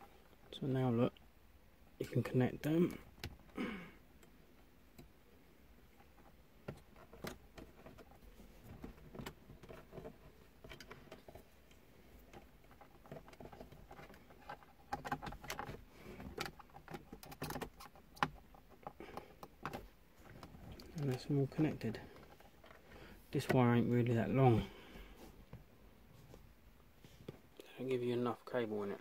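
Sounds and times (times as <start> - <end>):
wires and connectors clicking: 6.0 - 21.6.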